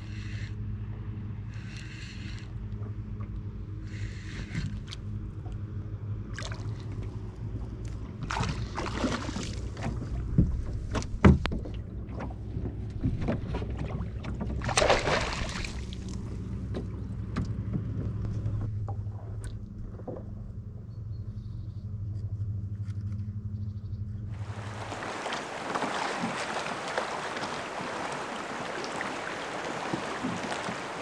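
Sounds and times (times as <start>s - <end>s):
low hum: 0.0s - 31.0s
oars splashing in water: 8.1s - 17.9s, 24.4s - 31.0s
wood knocking against boat: 9.8s - 14.9s, 24.4s - 31.0s.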